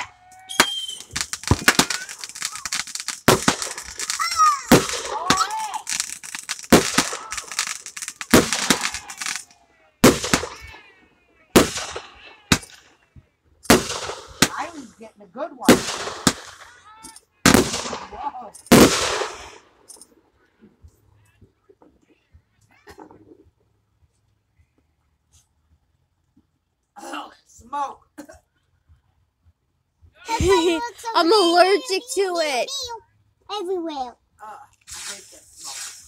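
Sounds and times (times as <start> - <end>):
fireworks banging and crackling: 0.0 - 10.9, 11.5 - 13.0, 13.6 - 15.0, 15.6 - 20.2, 30.3 - 32.8, 34.8 - 36.0.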